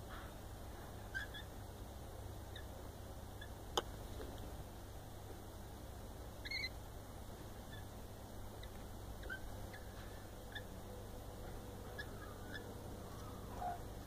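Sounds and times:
faint bird chirps: 1.1 - 1.5, 6.4 - 6.8, 7.7 - 7.9, 8.5 - 10.8, 11.8 - 14.0.

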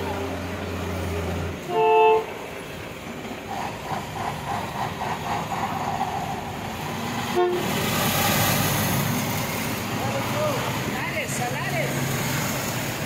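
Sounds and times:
excavator diesel engine and hydraulics: 0.0 - 13.0
horn toot: 7.3 - 7.8.

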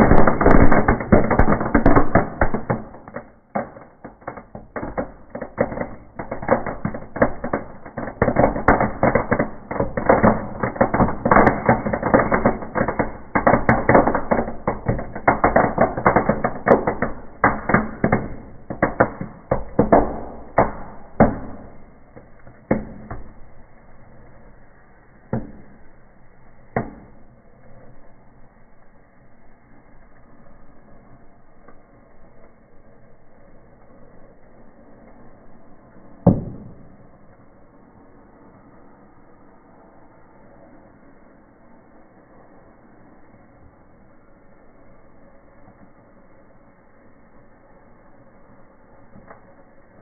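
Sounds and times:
firecracker bangs and crackles: 0.0 - 26.0, 26.6 - 27.4, 35.6 - 37.6.

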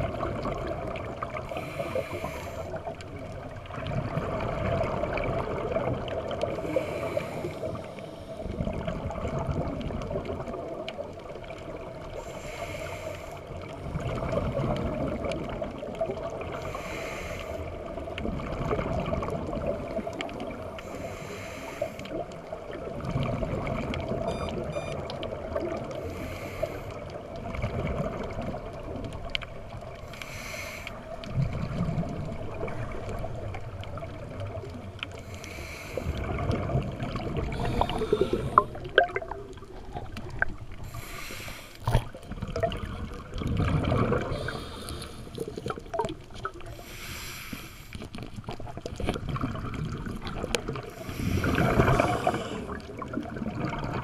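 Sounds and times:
exhale bubbling rumble: 0.0 - 12.0, 13.6 - 16.6, 17.7 - 20.8, 22.2 - 24.9, 31.0 - 35.2, 36.0 - 47.1, 48.0 - 54.0
regulator hissing inhale: 1.5 - 2.9, 6.6 - 8.5, 12.2 - 13.6, 16.6 - 17.8, 20.8 - 22.2, 26.0 - 27.0, 30.1 - 31.0, 35.2 - 36.2, 37.5 - 38.8, 40.8 - 41.9, 44.3 - 45.6, 46.7 - 48.1, 50.9 - 52.9.

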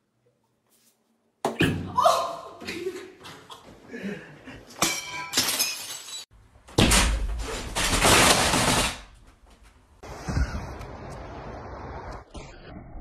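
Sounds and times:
shattering crash: 5.3 - 9.1.

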